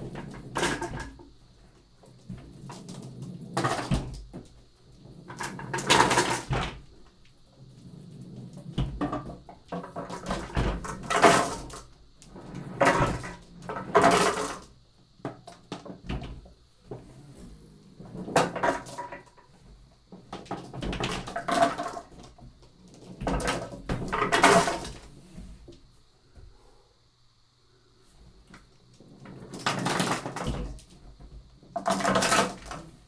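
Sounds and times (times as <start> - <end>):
marbles rolling in a wooden tray: 5.2 - 6.6, 8.4 - 14.7, 31.7 - 32.8.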